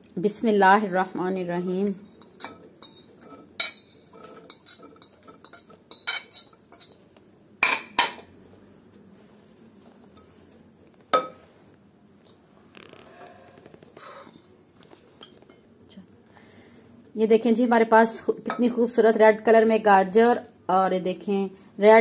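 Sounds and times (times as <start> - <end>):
metal spoon clinking on dishes: 0.7 - 7.0, 18.4 - 18.8.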